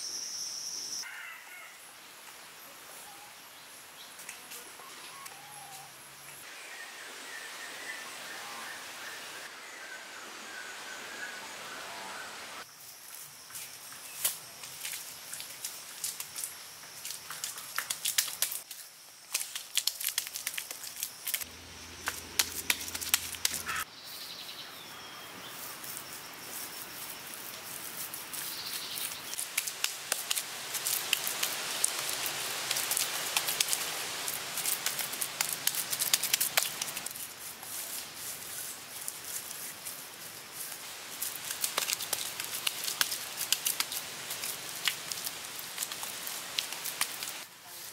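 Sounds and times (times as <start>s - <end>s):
wet mud smearing and patting: 14.2s - 23.8s, 27.7s - 47.5s.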